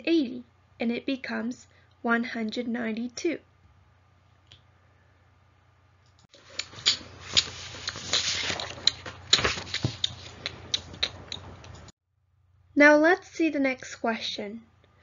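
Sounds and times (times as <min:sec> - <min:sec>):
rustling: 0:06.3 - 0:10.6.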